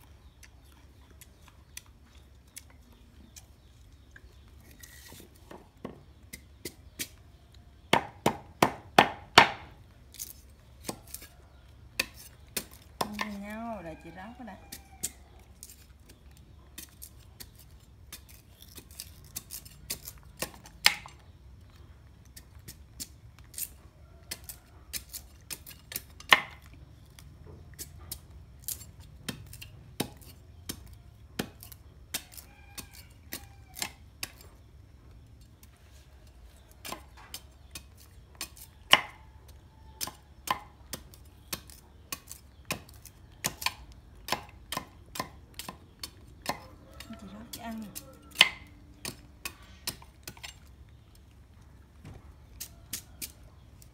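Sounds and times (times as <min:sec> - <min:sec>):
knife chopping sugarcane on wood: 0:04.7 - 0:11.3, 0:11.9 - 0:13.4, 0:16.7 - 0:21.2, 0:22.7 - 0:27.2, 0:27.8 - 0:34.5, 0:36.6 - 0:51.0.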